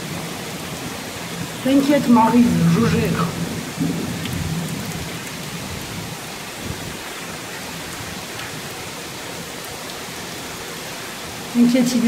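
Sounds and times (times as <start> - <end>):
heavy rain pouring: 0.0 - 12.0
low thunder rumble: 1.4 - 7.0.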